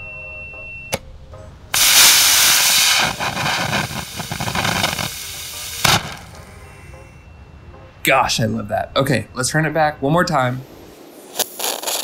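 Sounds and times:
rocket motor hissing: 1.8s - 6.4s.

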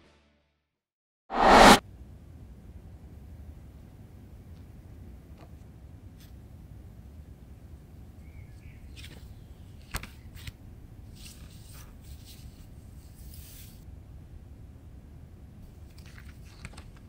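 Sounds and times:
papery sliding and rustling: 11.1s - 13.8s
low steady hum: 13.8s - 16.0s.

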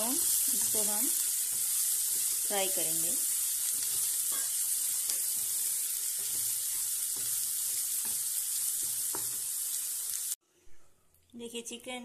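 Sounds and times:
spatula scraping and stirring: 0.0s - 9.6s
onions sizzling in hot oil: 0.0s - 10.4s.

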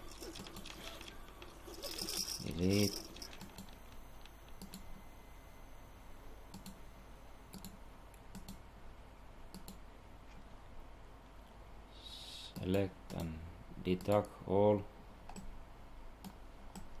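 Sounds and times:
steady low hum: 0.0s - 17.0s
computer mouse clicking: 3.2s - 4.9s, 6.5s - 6.8s, 7.5s - 8.6s, 9.5s - 9.8s, 15.3s - 15.5s, 16.2s - 17.0s.

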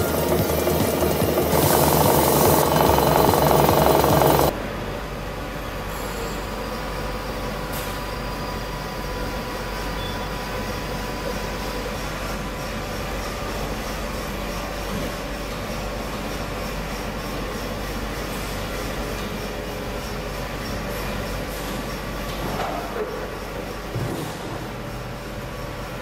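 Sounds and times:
grinding machine hum: 0.0s - 4.6s
faint machine whines: 0.0s - 26.0s.

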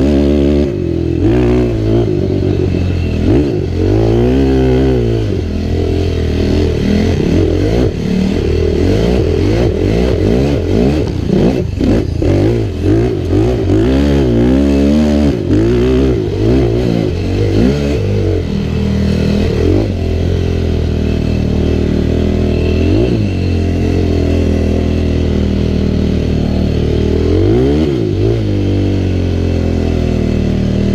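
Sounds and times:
quad engine revving: 0.0s - 30.9s.

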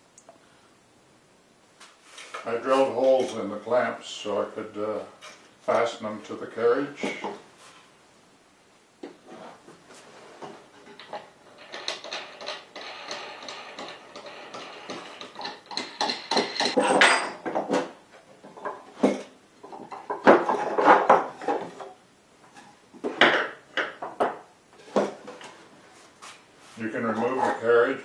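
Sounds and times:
wood and metal clamps clattering: 10.7s - 21.9s.

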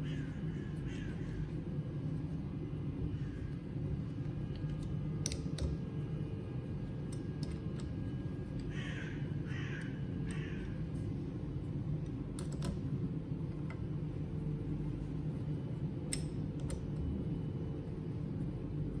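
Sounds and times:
crow cawing: 0.0s - 1.4s, 8.7s - 10.8s
low background hum: 0.0s - 19.0s.

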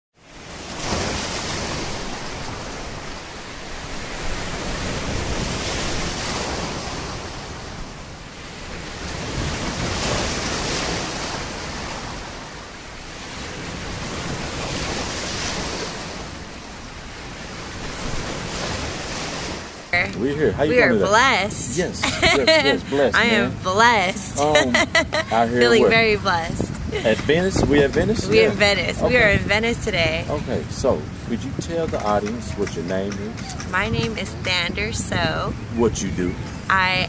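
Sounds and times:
ocean surf breaking: 0.2s - 37.0s.

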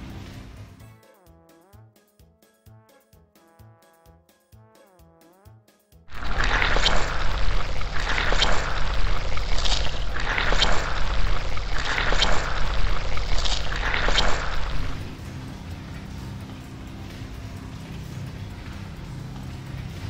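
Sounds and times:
water spray rushing: 6.1s - 15.1s
spinning car wash brushes: 6.1s - 20.0s.

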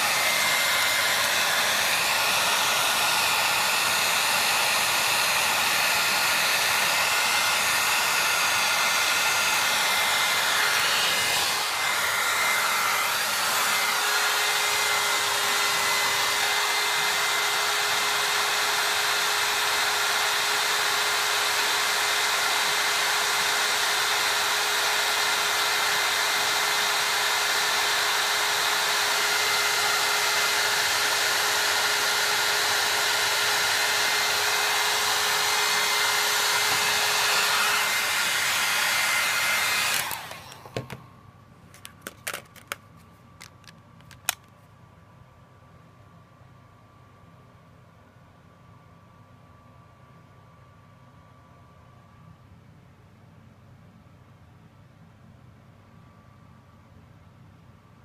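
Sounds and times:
hot-air blower rushing airflow: 0.0s - 41.1s.

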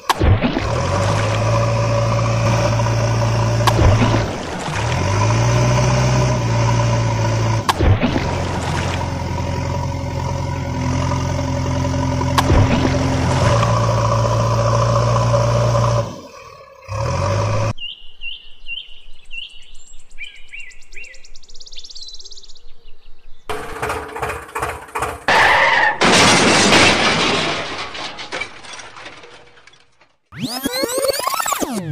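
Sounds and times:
engine humming: 0.0s - 17.8s, 23.5s - 31.9s
small birds chirping: 17.7s - 23.5s.

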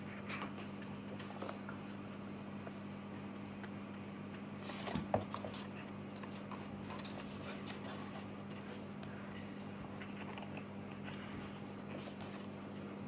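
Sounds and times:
steady low hum: 0.0s - 13.0s
paper pages rustling: 0.3s - 1.9s, 4.6s - 8.8s, 11.1s - 12.6s.

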